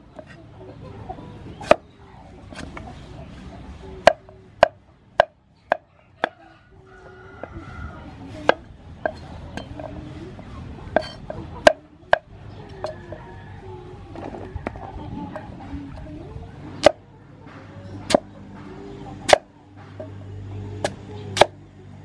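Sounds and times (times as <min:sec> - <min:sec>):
cleaver chopping on wooden board: 0:04.0 - 0:06.3, 0:18.1 - 0:18.3, 0:19.2 - 0:19.5, 0:20.8 - 0:21.6.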